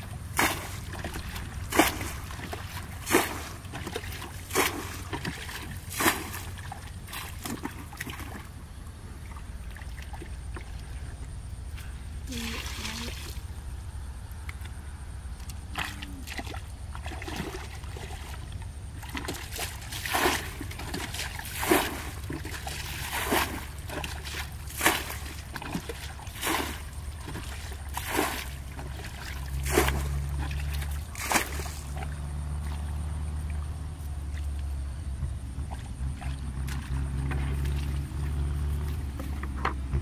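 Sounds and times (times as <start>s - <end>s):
thrown water splashing: 0.0s - 8.5s, 19.0s - 34.6s
bucket scooping water: 0.0s - 11.4s, 12.3s - 13.5s, 14.4s - 40.0s
steady low rumble: 0.0s - 40.0s.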